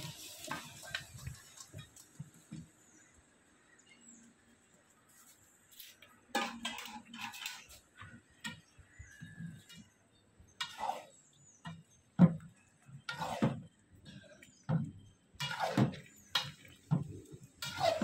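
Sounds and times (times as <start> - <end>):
metal spatula scraping a pot: 6.3 - 8.7, 10.6 - 11.3, 13.0 - 13.6, 15.4 - 16.8, 17.5 - 18.0.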